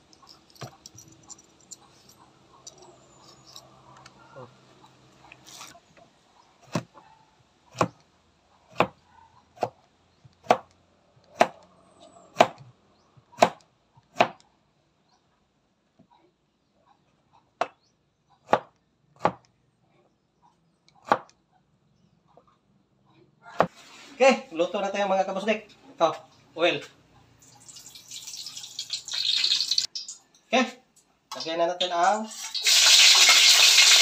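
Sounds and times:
knife chopping on plastic board: 6.6s - 7.0s, 7.7s - 8.0s, 8.7s - 9.0s, 10.4s - 10.7s, 11.3s - 11.6s, 12.4s - 12.6s, 13.4s - 14.4s, 18.4s - 19.5s, 21.0s - 21.3s.

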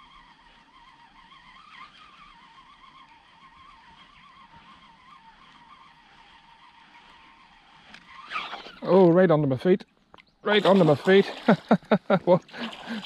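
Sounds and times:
fishing reel whine: 0.0s - 9.3s.

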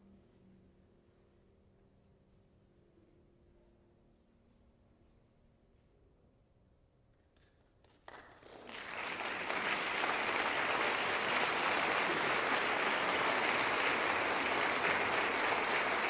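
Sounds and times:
audience applause: 8.1s - 16.0s.

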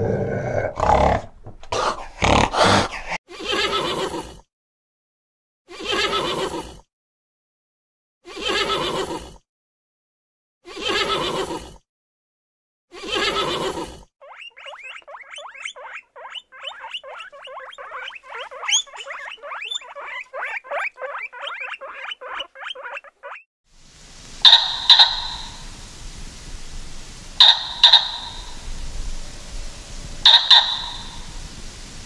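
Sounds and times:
guinea pigs squeaking: 14.2s - 23.4s, 24.4s - 25.7s, 27.4s - 28.7s, 30.2s - 31.4s
horse calling: 24.4s - 25.8s, 26.8s - 32.0s.

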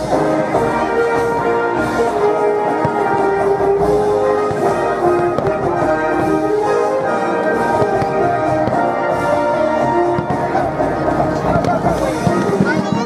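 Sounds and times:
orchestral music with brass: 0.0s - 13.0s.

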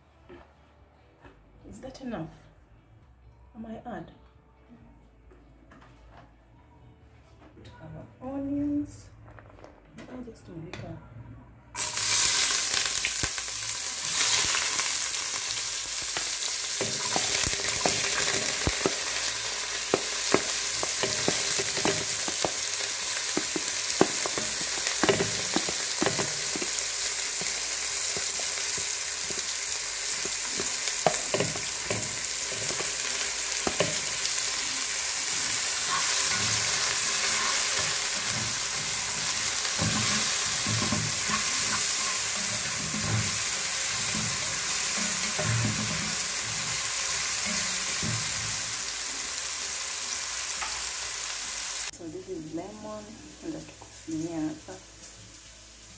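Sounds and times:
onions sizzling in hot oil: 11.8s - 55.9s
utensils scraping a pot: 35.4s - 48.0s.

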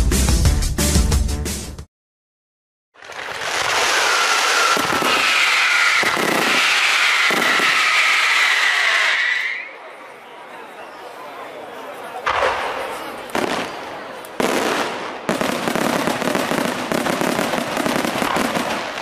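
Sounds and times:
music: 0.0s - 1.9s
fireworks shells booming: 3.0s - 9.1s, 12.2s - 19.0s
fireworks crackling and whistling: 3.0s - 9.8s, 12.3s - 19.0s.

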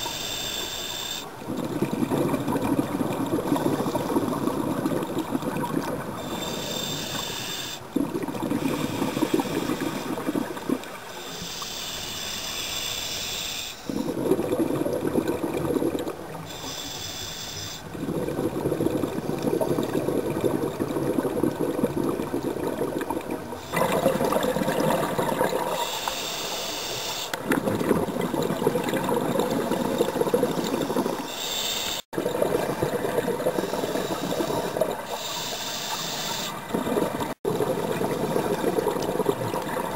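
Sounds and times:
regulator hissing inhales: 0.0s - 1.3s, 6.2s - 7.8s, 11.2s - 14.0s, 16.5s - 17.9s, 25.8s - 27.4s, 30.9s - 32.1s, 33.6s - 36.6s
bubbling exhales: 1.2s - 10.9s, 13.9s - 16.9s, 17.8s - 26.6s, 27.3s - 39.9s.

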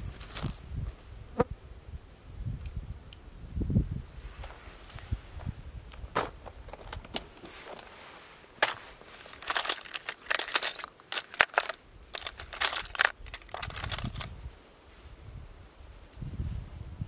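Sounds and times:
metal lures rattling in plastic: 8.6s - 14.3s.

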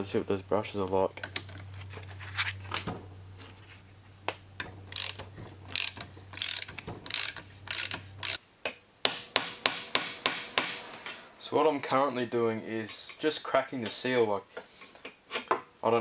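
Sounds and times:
ratchet wrench clicking: 4.9s - 8.4s.

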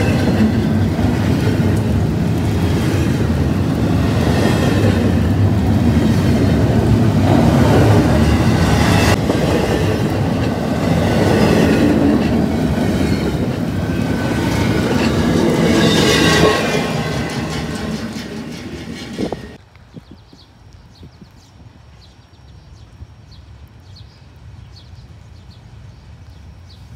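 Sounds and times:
freight train wheels clacking: 0.0s - 19.6s.

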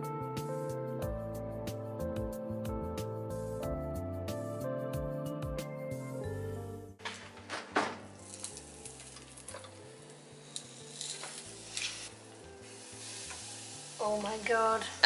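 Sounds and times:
wrap sizzling in sandwich toaster: 7.2s - 15.0s.

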